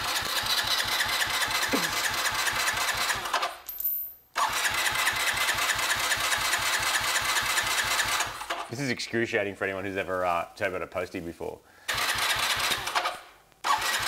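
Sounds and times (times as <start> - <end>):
motorcycle engine cranking: 0.0 - 3.6, 4.4 - 8.7, 11.9 - 14.0.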